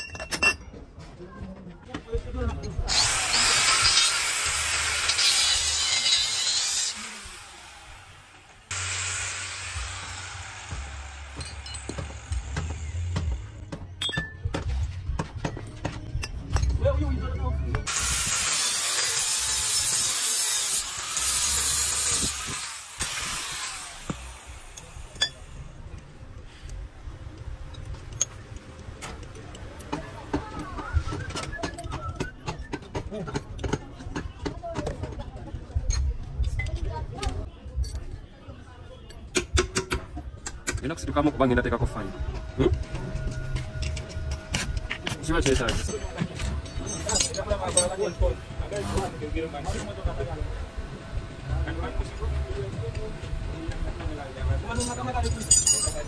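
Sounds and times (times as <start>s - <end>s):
angle grinder grinding steel: 2.9s - 13.2s, 17.9s - 25.4s
metal parts clinking: 45.5s - 48.0s, 54.8s - 56.0s.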